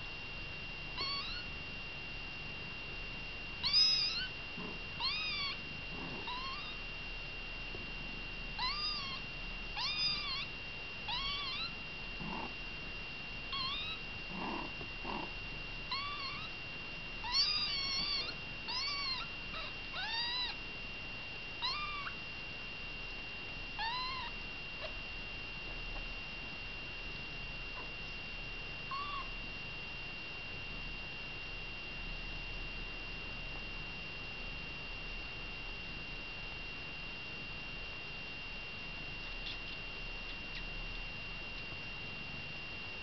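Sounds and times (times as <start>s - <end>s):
faint high whine: 0.0s - 43.0s
kittens mewing: 1.0s - 1.4s, 3.6s - 6.8s, 8.6s - 9.2s, 9.8s - 10.5s, 11.1s - 12.6s, 13.5s - 16.5s, 17.2s - 20.6s, 21.6s - 22.2s, 23.8s - 25.0s, 28.9s - 29.3s.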